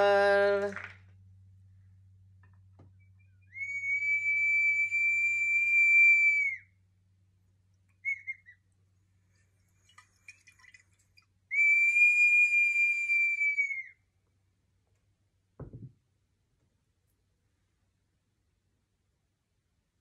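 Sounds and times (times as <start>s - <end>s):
whistling vessel high notes: 3.4s - 6.7s.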